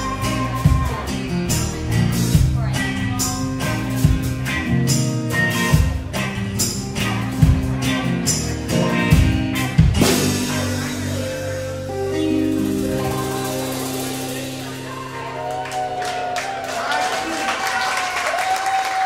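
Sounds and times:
sustained instrumental notes: 0:00.0 - 0:17.6.

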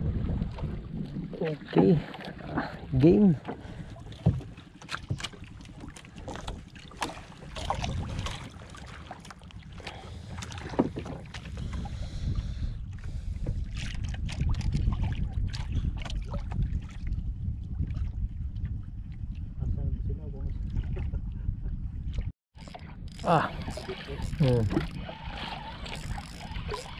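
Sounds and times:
water slapping boat: 0:00.0 - 0:26.9
wind buffeting microphone: 0:00.0 - 0:26.9
gear clicking and knocking: 0:22.6 - 0:26.9.

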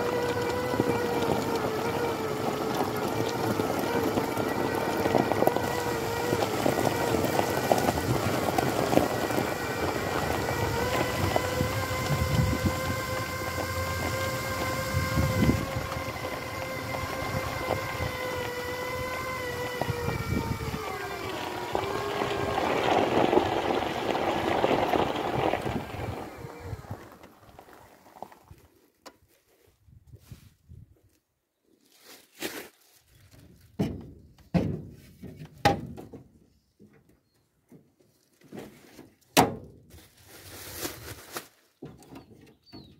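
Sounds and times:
wheelchair motors whining: 0:00.0 - 0:28.7
tyres rumbling on gravel: 0:00.0 - 0:29.0.

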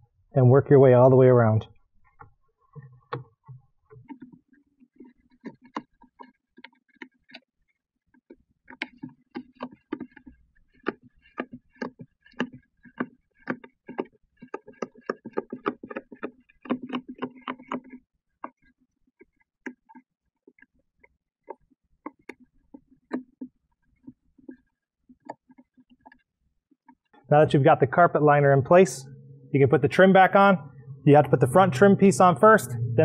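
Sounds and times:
short knocks and rubbing: 0:08.2 - 0:20.7.

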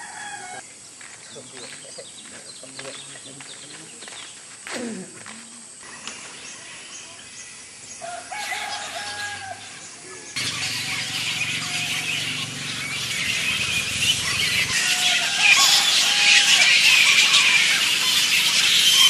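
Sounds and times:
fruit bats screeching and chattering: 0:05.8 - 0:19.0.

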